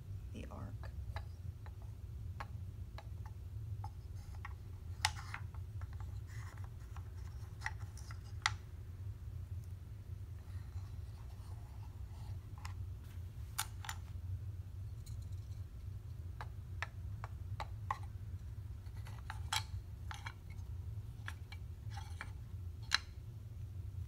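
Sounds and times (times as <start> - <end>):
steady low hum: 0.0 - 24.0
wooden figures clicking: 13.5 - 14.1, 14.9 - 23.2.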